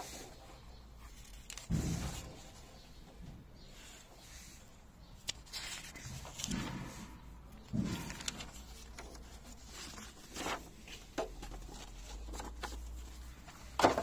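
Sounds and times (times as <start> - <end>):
paper pages rustling: 1.0 - 2.6, 5.2 - 14.0.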